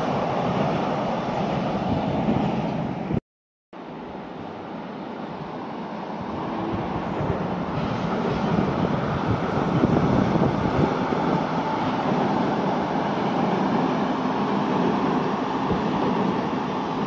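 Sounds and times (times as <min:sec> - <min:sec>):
train rumbling over bridge: 0:00.0 - 0:03.2, 0:03.8 - 0:17.0.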